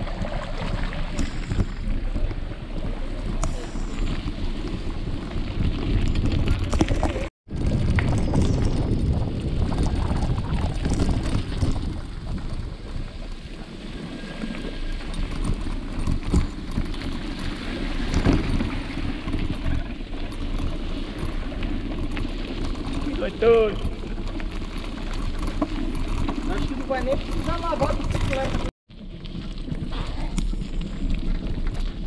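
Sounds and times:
wind buffeting microphone: 0.0s - 13.5s
bike tyres rolling on gravel: 0.0s - 32.0s.

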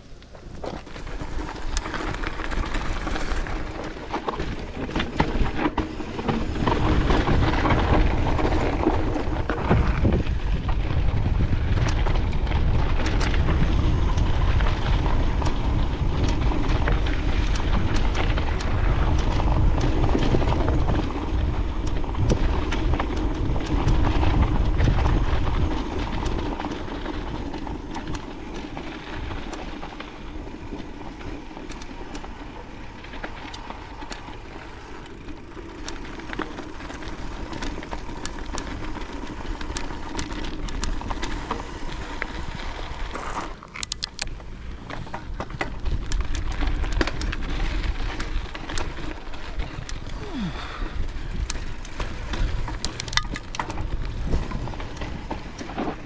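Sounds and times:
bike rattles and clicks: 0.0s - 56.0s
tyres rumbling over dirt: 0.0s - 56.0s
wind buffeting microphone: 1.3s - 32.4s, 44.7s - 56.0s.

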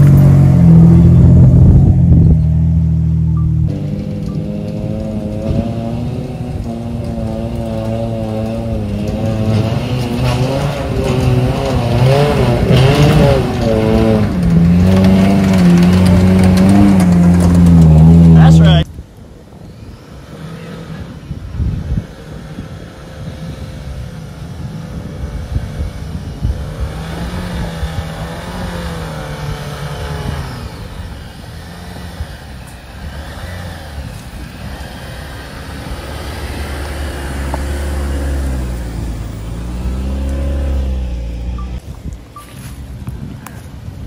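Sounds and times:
off-road vehicle engine revving: 0.0s - 18.9s, 19.7s - 42.7s.

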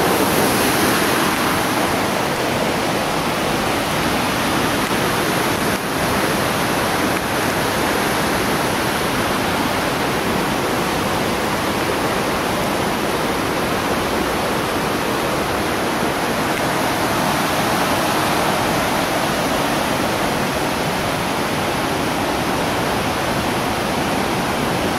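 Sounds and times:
stream rushing over rocks: 0.0s - 24.9s.

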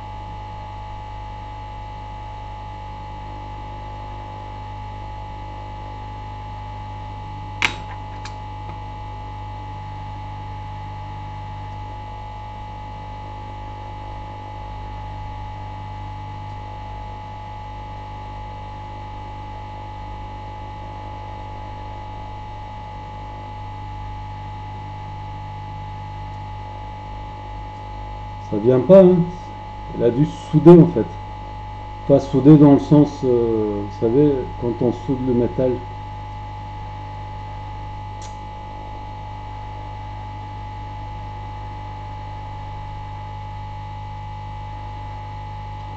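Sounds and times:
sharp click: 7.6s - 8.8s, 38.2s - 38.4s
hot air station blowing with fan whine: 25.0s - 37.2s.

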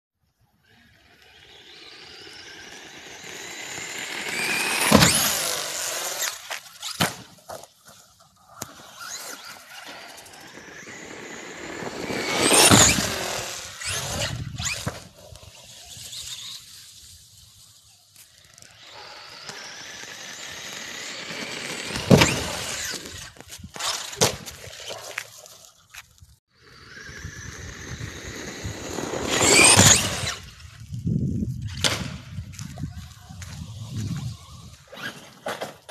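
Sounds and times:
rc car motor whining: 0.3s - 7.2s, 7.8s - 25.9s, 26.6s - 31.8s, 32.8s - 35.9s
toy car landing thud: 3.7s - 7.6s, 11.8s - 15.1s, 21.9s - 24.6s, 29.2s - 30.4s
car hitting wooden ramp: 4.4s - 5.5s.

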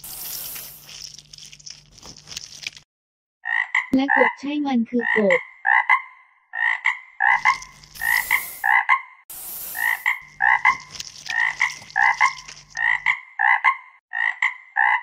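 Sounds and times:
hissing noise: 0.0s - 1.2s, 7.4s - 8.7s, 9.3s - 12.6s
frogs croaking: 3.4s - 4.4s, 5.0s - 9.0s, 9.7s - 15.0s.

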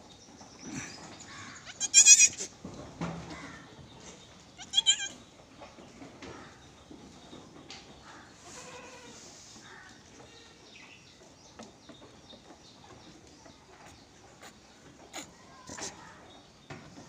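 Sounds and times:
goat kid bleating: 1.6s - 2.5s, 4.6s - 5.2s, 8.5s - 9.2s.

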